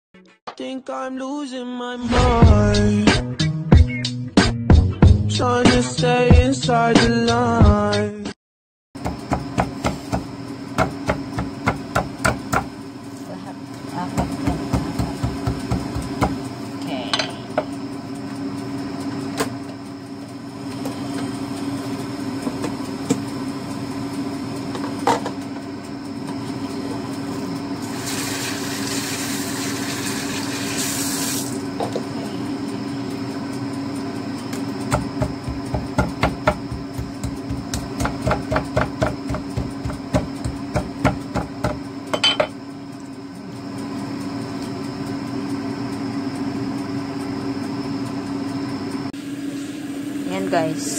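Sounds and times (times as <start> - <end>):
steady low hum: 2.0 - 3.5, 9.0 - 28.6, 31.4 - 50.9
cleaver chopping meat on wood: 9.0 - 12.7, 14.2 - 16.4, 34.9 - 41.8
kitchen tap running: 27.8 - 31.6.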